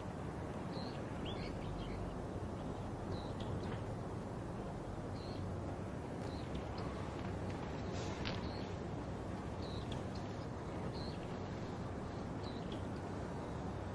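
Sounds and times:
steady background hiss: 0.0s - 13.9s.

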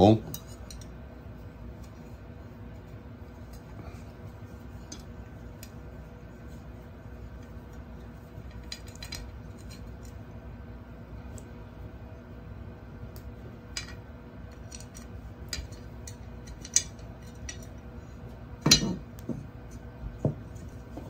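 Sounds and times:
metal parts clicking and clinking: 8.4s - 10.2s, 13.7s - 17.7s
metal clunk: 18.6s - 19.0s.

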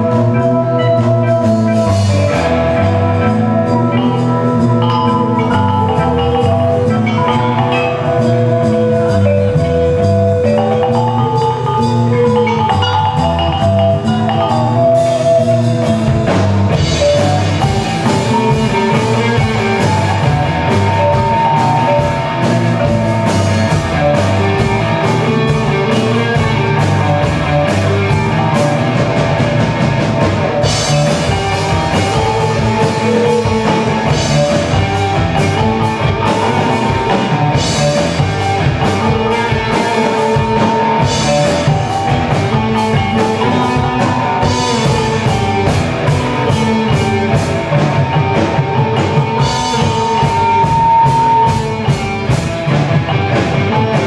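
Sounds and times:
bass guitar: 0.0s - 54.0s
drum kit: 0.0s - 54.0s
electric guitar: 0.0s - 54.0s.

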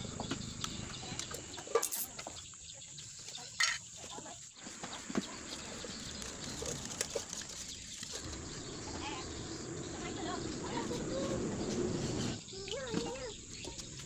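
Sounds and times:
paint cans clicking and knocking: 0.4s - 2.6s.

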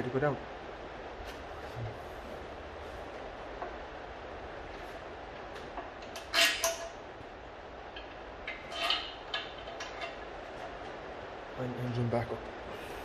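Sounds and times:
metal creaks and clanks: 5.4s - 7.1s, 7.9s - 10.9s.

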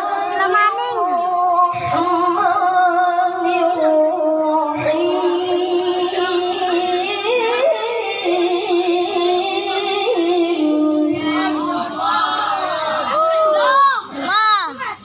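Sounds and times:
boy reciting melodically: 0.0s - 15.0s.

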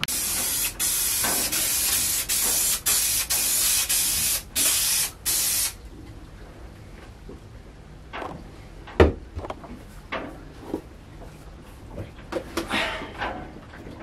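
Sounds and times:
aerosol spray can hissing: 0.1s - 5.8s.

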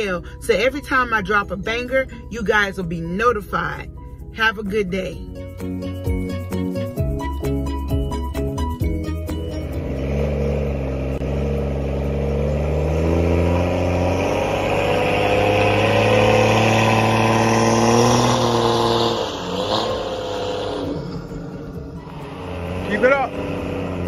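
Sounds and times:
car engine at high revs: 9.4s - 24.0s.

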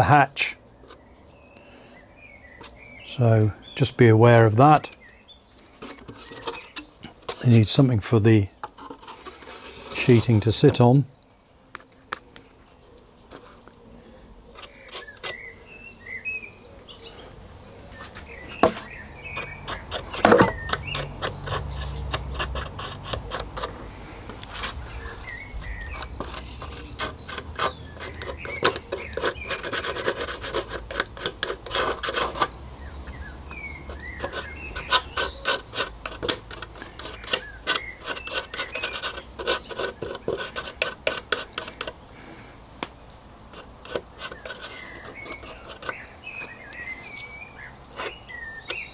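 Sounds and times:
wood sanding by hand: 18.0s - 32.5s, 33.8s - 41.9s, 43.5s - 47.2s.

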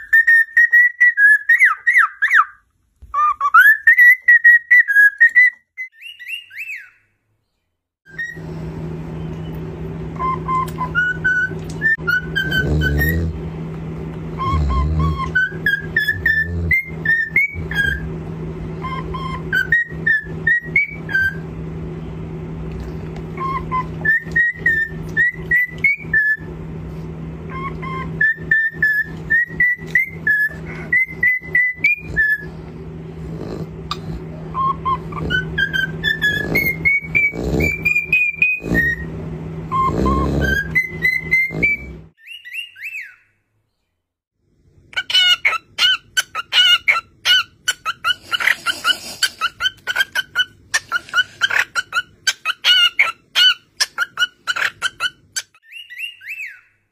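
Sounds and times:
cockatiel whistling a tune: 0.0s - 7.1s, 8.1s - 8.4s, 10.2s - 13.2s, 14.4s - 18.0s, 18.8s - 21.4s, 23.4s - 26.5s, 27.5s - 32.5s, 34.6s - 39.1s, 39.7s - 43.3s, 49.4s - 56.8s
steady low hum: 8.1s - 42.2s.

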